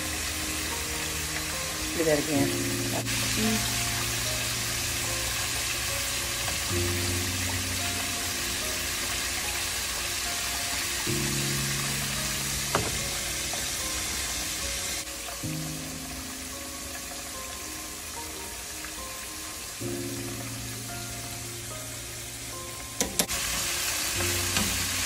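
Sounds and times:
background music with held chords: 0.0s - 25.0s
chicken sizzling in oil: 0.0s - 25.0s.

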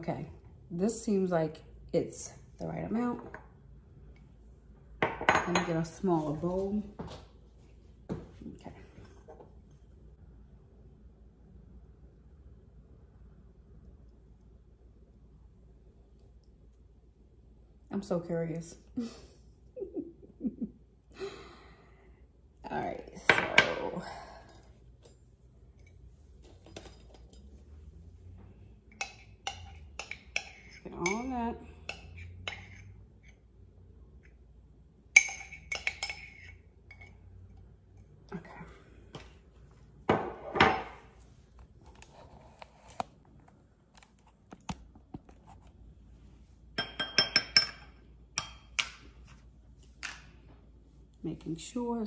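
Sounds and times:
glassware and utensils clinking: 46.8s - 48.9s.

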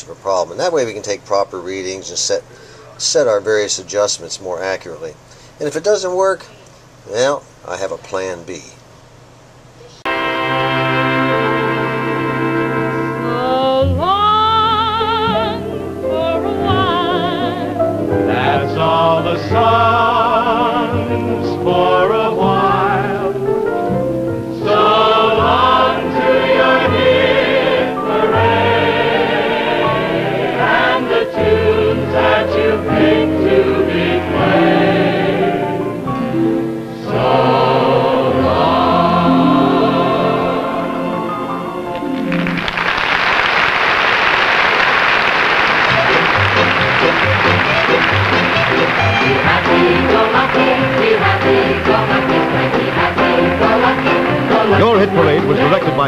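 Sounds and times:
choir singing with vibrato: 10.1s - 42.8s, 44.7s - 56.0s.

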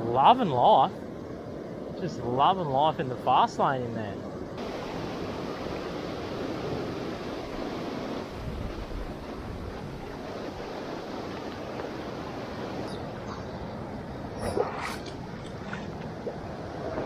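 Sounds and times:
water rushing over boulders: 4.6s - 17.0s.

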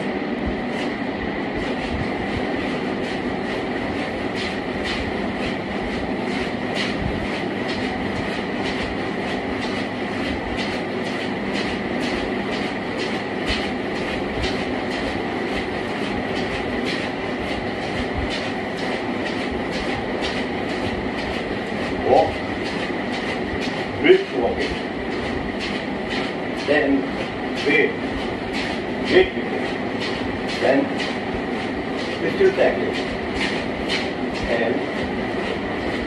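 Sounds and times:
treadmill motor whine: 0.0s - 36.0s
footfalls on treadmill belt: 1.6s - 36.0s.

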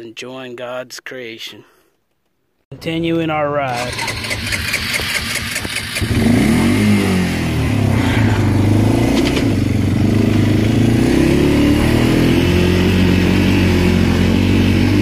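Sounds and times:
quad bike engine revving: 3.7s - 15.0s.

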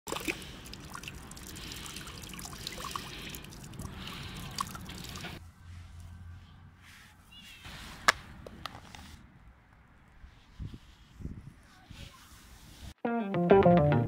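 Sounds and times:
water drips: 0.1s - 5.4s
water stream splashing: 0.1s - 5.4s.

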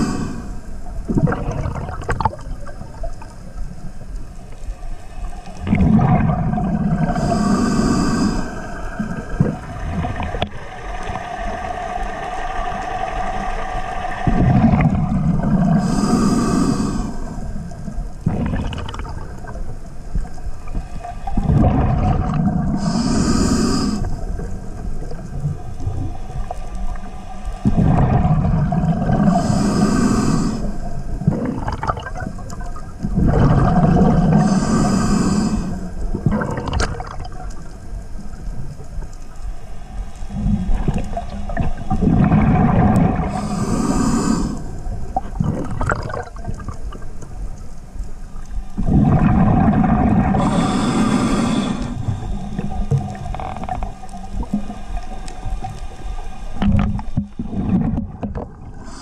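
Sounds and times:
regulator hissing inhalations: 0.0s - 0.7s, 7.1s - 9.0s, 15.6s - 17.5s, 22.8s - 24.2s, 29.2s - 30.9s, 34.2s - 36.0s, 43.3s - 44.9s, 50.4s - 53.5s, 58.8s - 59.0s
diver exhaling bubbling rumbles: 0.0s - 3.3s, 5.6s - 19.6s, 21.3s - 26.1s, 27.6s - 37.4s, 40.3s - 47.2s, 48.8s - 54.8s, 56.6s - 59.0s.

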